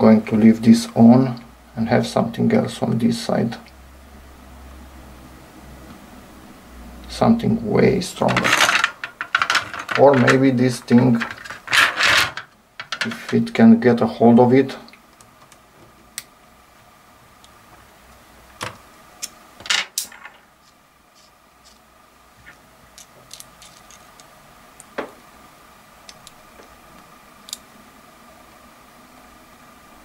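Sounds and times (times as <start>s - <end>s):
faint steady hum: 0.0s - 30.0s
metal tools clicking and clinking: 8.3s - 10.5s.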